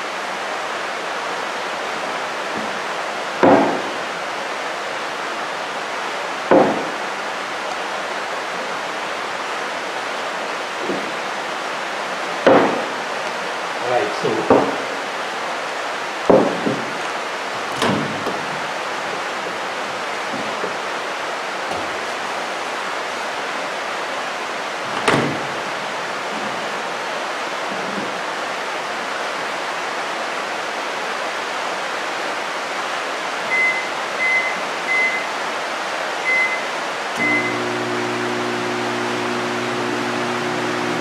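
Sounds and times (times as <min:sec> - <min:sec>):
steady rain: 0:00.0 - 0:41.0
knocks: 0:03.4 - 0:03.9, 0:06.5 - 0:07.0, 0:12.5 - 0:12.9, 0:14.4 - 0:14.8, 0:16.3 - 0:17.0, 0:17.7 - 0:18.7
microwave keypad beeps: 0:33.5 - 0:35.3, 0:36.3 - 0:37.6.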